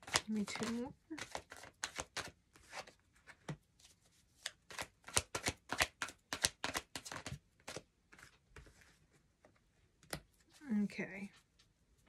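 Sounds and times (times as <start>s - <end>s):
cards being shuffled: 0.0s - 9.0s.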